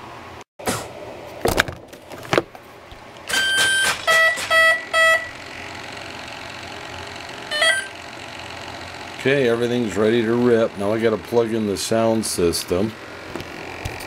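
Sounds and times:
motor startup beeps: 0:03.3 - 0:11.0.

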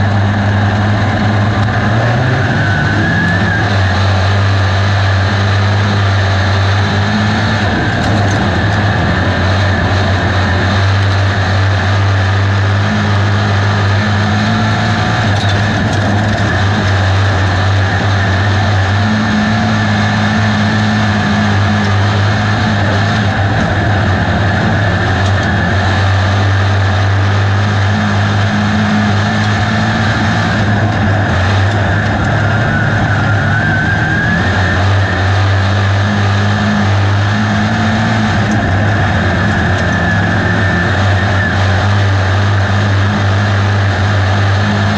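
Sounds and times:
race car engine running hard: 0:00.0 - 0:44.9
short rising whine: 0:00.0 - 0:44.9.

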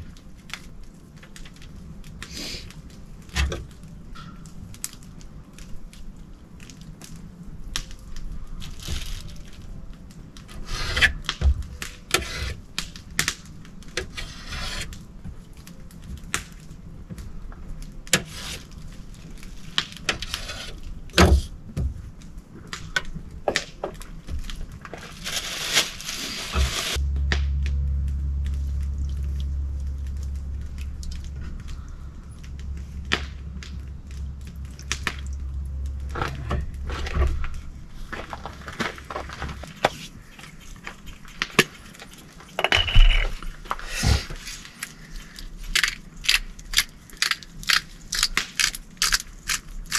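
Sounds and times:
steady low hum: 0:00.0 - 0:49.9
knife scraping meat on metal table: 0:14.1 - 0:14.9.

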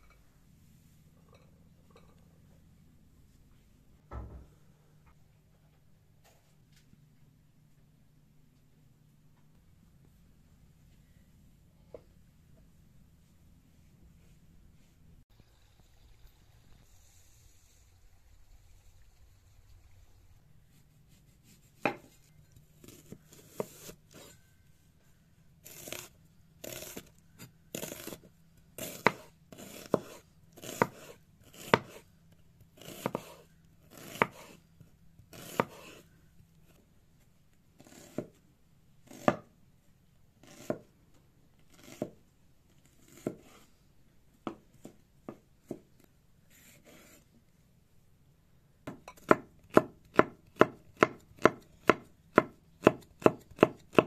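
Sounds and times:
knife slicing onion on board: 0:21.4 - 0:22.2, 0:22.8 - 0:24.4, 0:25.6 - 0:32.1, 0:32.8 - 0:34.6, 0:35.3 - 0:36.0, 0:37.8 - 0:38.4, 0:39.0 - 0:39.5, 0:40.4 - 0:40.9, 0:41.7 - 0:42.2, 0:42.8 - 0:43.7, 0:46.5 - 0:47.2, 0:48.9 - 0:54.0.

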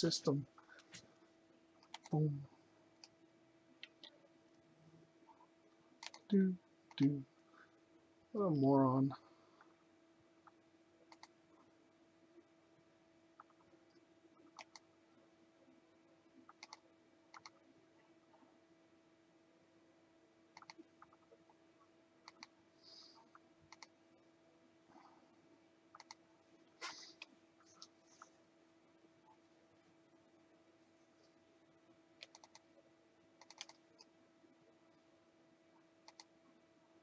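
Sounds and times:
faint electrical hum: 0:00.0 - 0:37.0
computer mouse clicks: 0:01.8 - 0:02.2, 0:03.8 - 0:04.2, 0:05.3 - 0:06.3, 0:10.4 - 0:11.4, 0:13.4 - 0:14.9, 0:16.4 - 0:17.6, 0:20.5 - 0:21.4, 0:22.2 - 0:22.6, 0:23.2 - 0:24.0, 0:25.9 - 0:26.2, 0:32.2 - 0:32.7, 0:33.4 - 0:34.1, 0:36.0 - 0:36.3.

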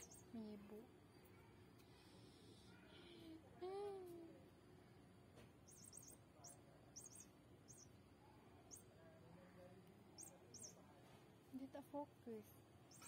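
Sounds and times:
faint high-pitched chirps: 0:00.0 - 0:13.0.

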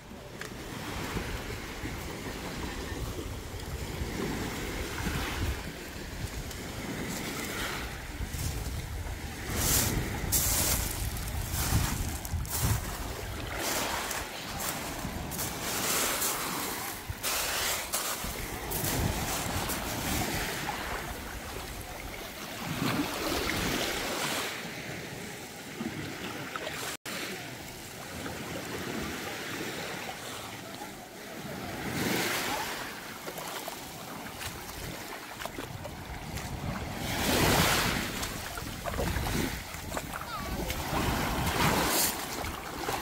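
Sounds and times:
waves lapping on pebble shore: 0:00.0 - 0:43.0
wind buffeting microphone: 0:01.1 - 0:23.9, 0:34.4 - 0:43.0.

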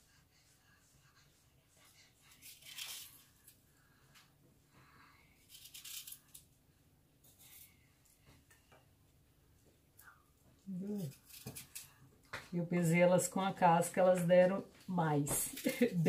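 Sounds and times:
knife cutting apple: 0:10.7 - 0:11.9.

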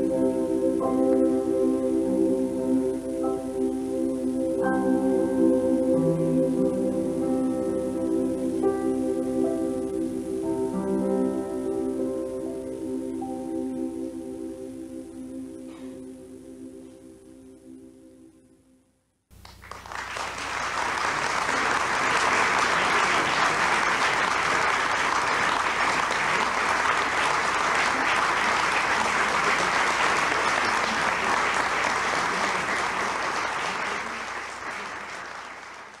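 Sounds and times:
large audience applauding: 0:19.3 - 0:36.0.

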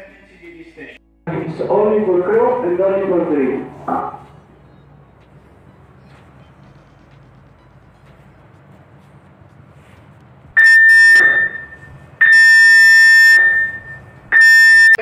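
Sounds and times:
electronic alarm tone blasts: 0:10.6 - 0:15.0.

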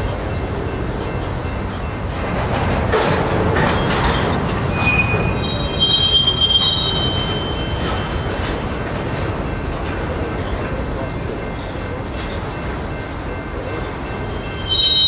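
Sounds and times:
train wheels rumbling and clicking: 0:00.0 - 0:15.0
metallic wheel squeal: 0:03.6 - 0:08.5, 0:14.4 - 0:15.0.

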